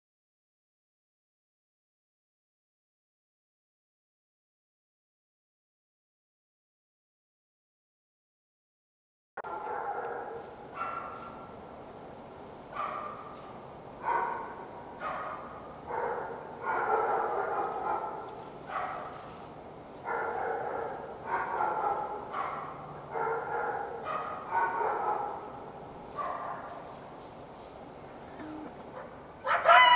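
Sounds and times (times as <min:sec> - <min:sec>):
coyote drawn-out calls: 0:28.2 - 0:29.9
coyote yelping: 0:28.3 - 0:29.9.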